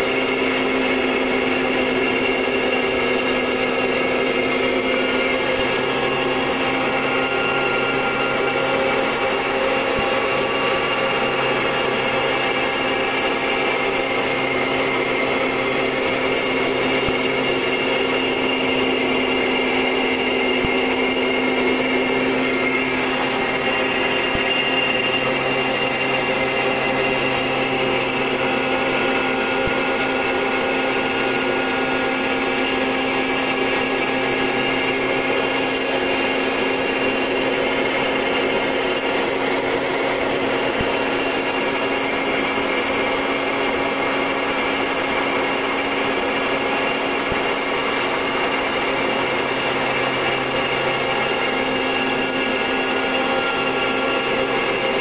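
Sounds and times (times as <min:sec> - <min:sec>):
turboprop engine droning: 0:00.0 - 0:55.0.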